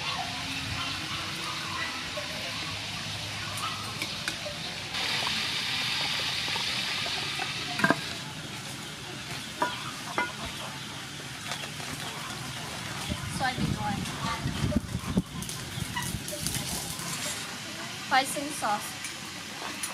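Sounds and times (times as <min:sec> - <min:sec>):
meat sizzling in hot oil: 0:03.9 - 0:10.4.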